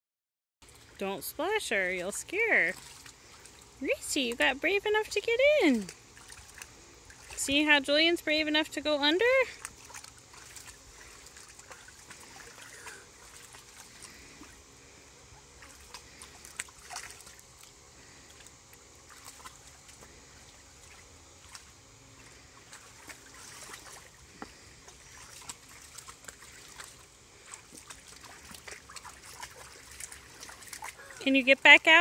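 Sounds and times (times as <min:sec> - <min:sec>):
water trickling and sloshing: 0:00.6 - 0:32.0
small water splashes: 0:01.9 - 0:04.4, 0:05.6 - 0:07.7, 0:09.3 - 0:14.8, 0:15.4 - 0:31.3.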